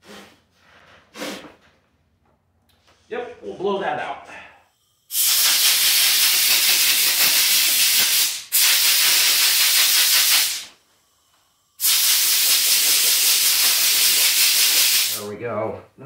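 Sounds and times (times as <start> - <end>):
compressed air blow gun hissing: 5.0 - 10.8, 11.8 - 15.2.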